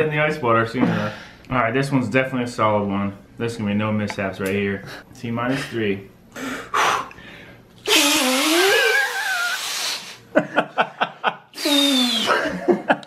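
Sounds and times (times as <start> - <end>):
man blowing hard through egg: 7.8 - 10.3, 11.5 - 12.6.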